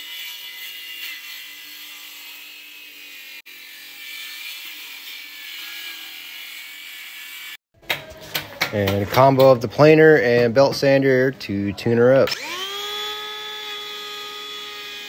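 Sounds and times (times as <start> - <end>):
circular saw cutting wood: 0.0 - 7.6, 12.2 - 15.0.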